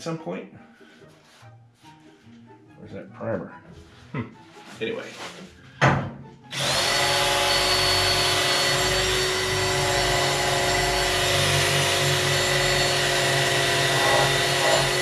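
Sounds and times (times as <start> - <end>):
electric drill whining into steel: 6.5 - 15.0.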